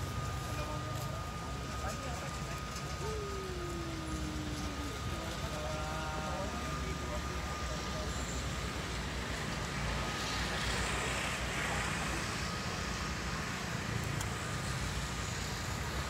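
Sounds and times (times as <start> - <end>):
small electric motor whining: 0.0 - 10.9.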